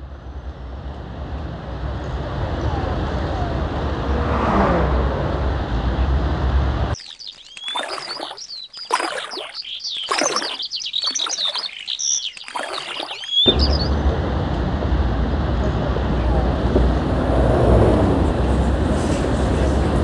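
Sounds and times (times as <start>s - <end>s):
street traffic noise: 0.0s - 7.0s, 13.4s - 20.0s
birds chirping and twittering: 6.9s - 14.0s
water swishing: 7.0s - 13.4s.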